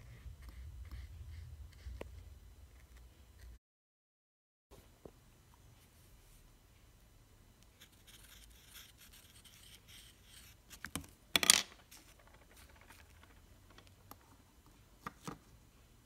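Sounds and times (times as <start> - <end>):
pen scratching on canvas: 7.8 - 10.6.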